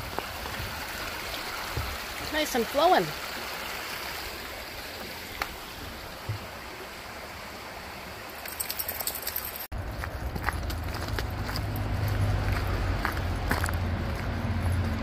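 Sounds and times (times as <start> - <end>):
stream flowing over stones: 0.0 - 15.0.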